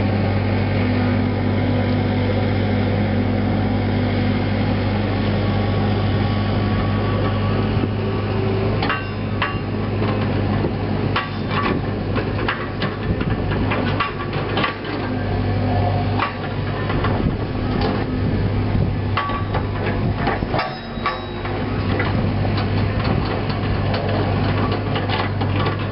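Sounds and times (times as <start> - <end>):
excavator diesel engine running: 0.0 - 25.9
metal clanks and knocks: 8.8 - 10.3, 11.2 - 15.1, 19.2 - 25.9.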